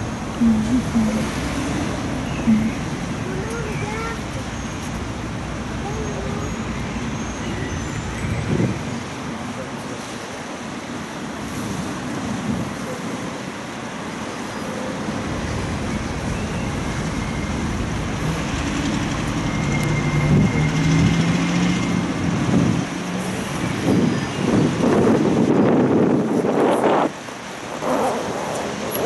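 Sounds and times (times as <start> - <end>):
road traffic: 0.0 - 29.0
wind on microphone: 8.0 - 9.4, 22.1 - 29.0.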